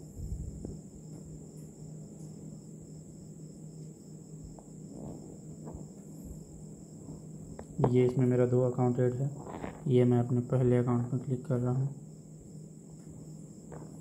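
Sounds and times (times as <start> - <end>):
low hum: 0.0 - 2.4.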